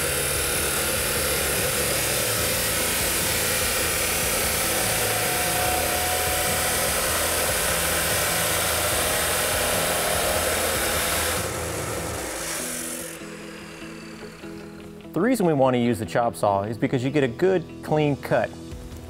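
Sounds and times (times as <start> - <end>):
abrasive saw grinding metal pipe: 0.0 - 15.1.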